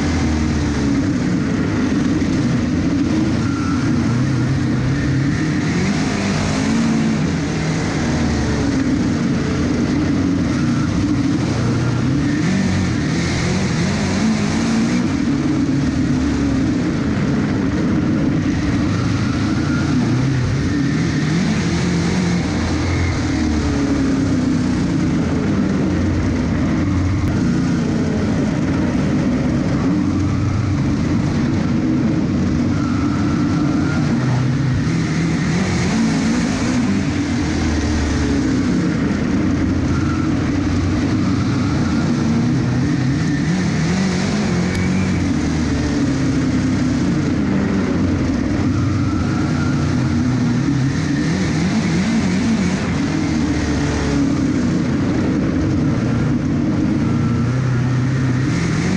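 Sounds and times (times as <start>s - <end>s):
race car engine under load: 0.0s - 58.9s.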